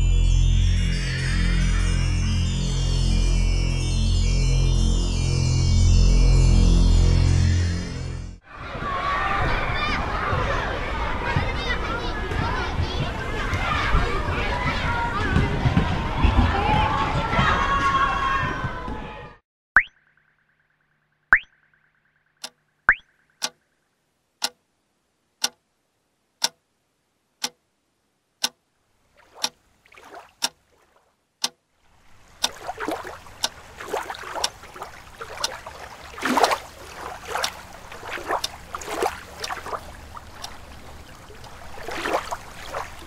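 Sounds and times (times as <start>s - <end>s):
sharp ticks: 21.3s - 23.6s, 37.4s - 37.6s.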